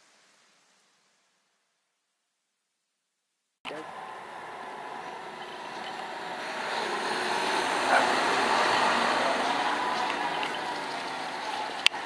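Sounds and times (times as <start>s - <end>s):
tractor diesel engine passing: 3.7s - 12.0s
tyre noise: 3.7s - 12.0s.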